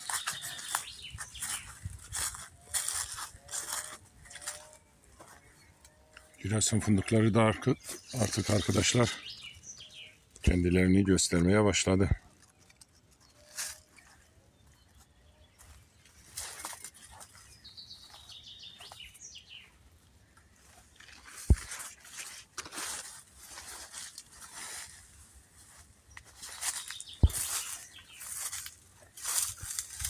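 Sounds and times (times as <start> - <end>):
rustling and brushing: 0.0 - 5.5, 20.6 - 30.0
sharp low thumps: 21.5 - 21.8, 27.2 - 27.6.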